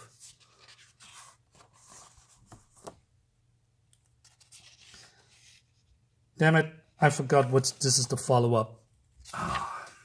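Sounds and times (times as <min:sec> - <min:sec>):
paper pages rustling: 0:00.1 - 0:03.0, 0:04.0 - 0:05.9.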